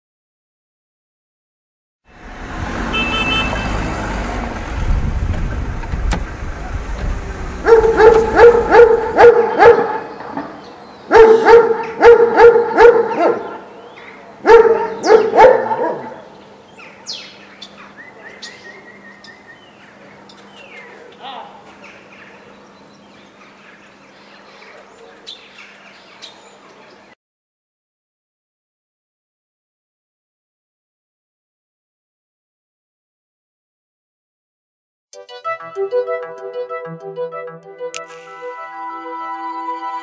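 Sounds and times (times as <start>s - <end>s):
low rumble: 4.4s - 9.2s
dog barking: 7.6s - 10.1s, 11.1s - 13.7s, 14.4s - 16.3s.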